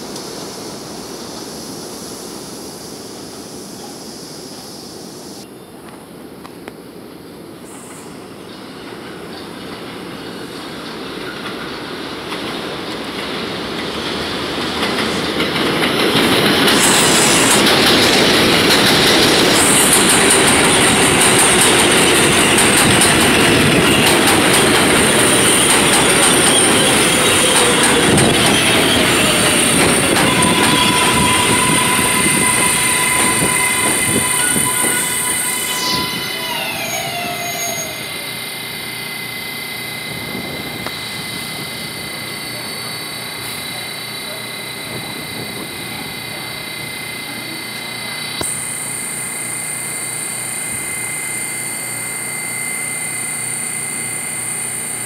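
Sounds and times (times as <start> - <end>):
falling whine of train: 0.0 - 55.0
train wheels clattering on rails: 8.6 - 35.8
high-pitched wheel squeal: 25.1 - 38.5.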